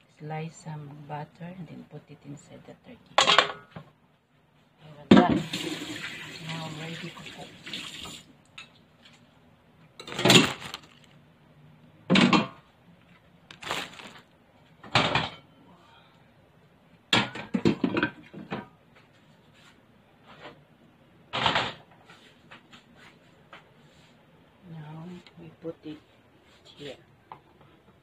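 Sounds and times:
kitchen clatter and rustle: 10.0s - 11.2s, 13.5s - 15.5s, 17.2s - 20.6s.

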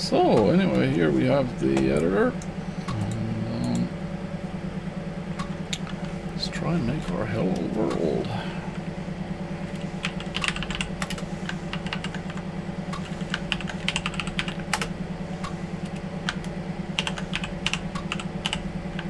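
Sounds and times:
low hum: 0.0s - 19.0s
keyboard typing: 9.8s - 12.4s, 13.0s - 14.9s, 15.8s - 19.0s.

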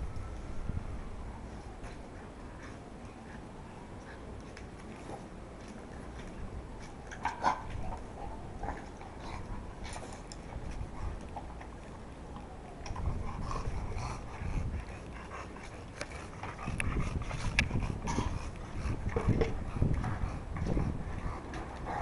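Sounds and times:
dog panting: 1.8s - 6.3s, 12.9s - 22.0s.

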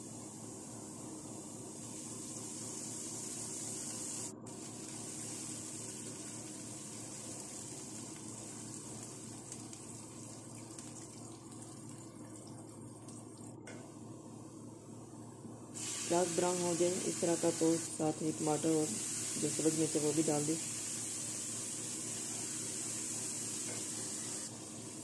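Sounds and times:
onions sizzling in hot oil: 1.7s - 9.9s, 15.8s - 25.0s.

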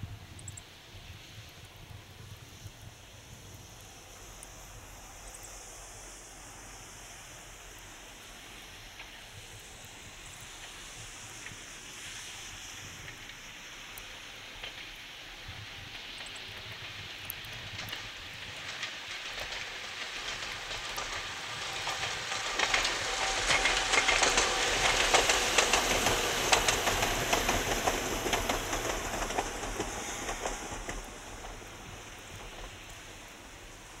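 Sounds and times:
train wheels rumbling: 0.0s - 34.0s
wheels clicking over rail joints: 8.8s - 34.0s.

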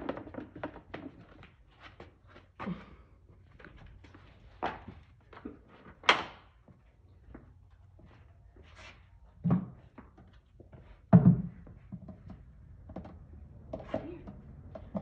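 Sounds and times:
objects thumping on hard floor: 11.1s - 15.0s.

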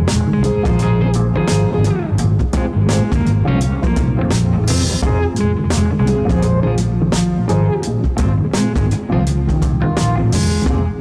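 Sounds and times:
guitar-led band music: 0.0s - 11.0s.

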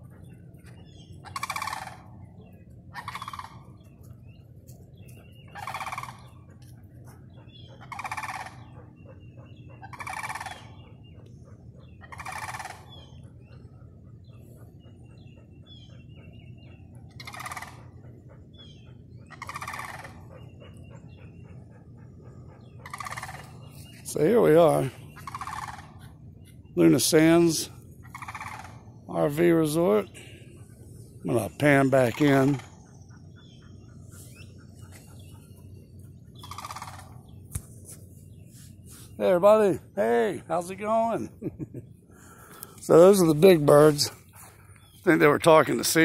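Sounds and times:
cranes calling: 0.0s - 46.0s.

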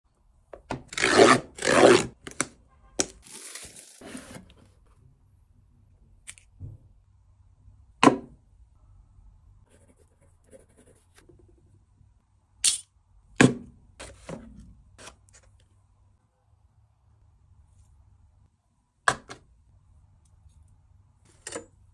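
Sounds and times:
cardboard tearing: 3.2s - 4.4s
cardboard rustling: 3.2s - 4.7s
cardboard box scraping on wood: 3.6s - 4.5s.

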